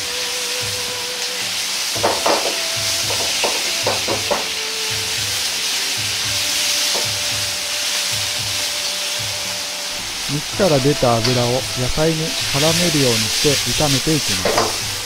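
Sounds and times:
food sizzling in a wok: 0.0 - 15.0
stirring knocks: 2.0 - 5.2, 10.0 - 15.0.

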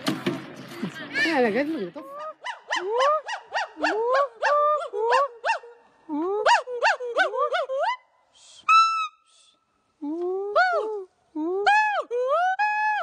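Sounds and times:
gibbon hooting: 2.0 - 8.1.

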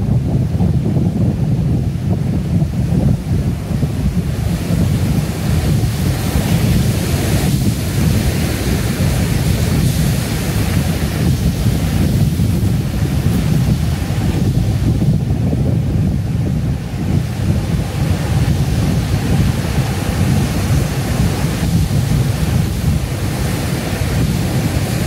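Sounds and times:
ocean surf crashing over rocks: 0.0 - 25.0
wind rumble on microphone: 0.0 - 25.0.

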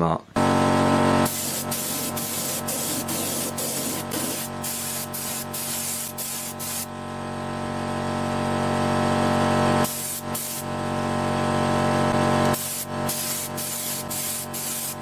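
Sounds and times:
spray paint hissing on metal: 1.2 - 6.9, 9.8 - 10.7, 12.5 - 15.0.

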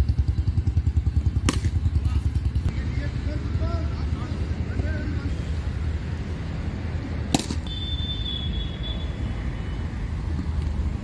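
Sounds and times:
cricket bat hitting ball: 1.4 - 1.8, 7.3 - 7.7.

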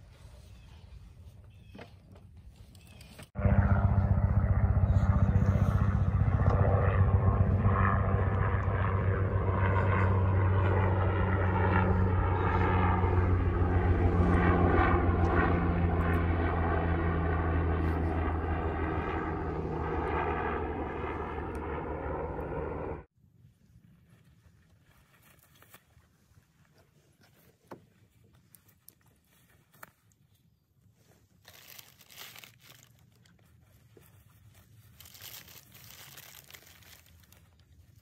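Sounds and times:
helicopter engine drone: 3.4 - 23.1
helicopter rotor beat: 3.4 - 23.1.

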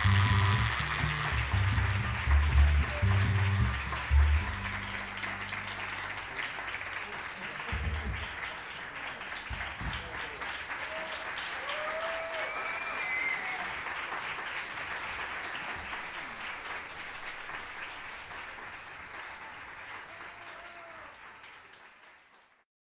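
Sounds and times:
audience applauding: 0.0 - 22.6.

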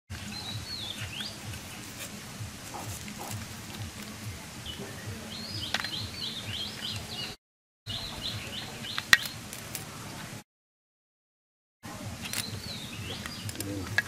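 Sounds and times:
bird chirping: 0.1 - 10.4, 11.9 - 14.0.

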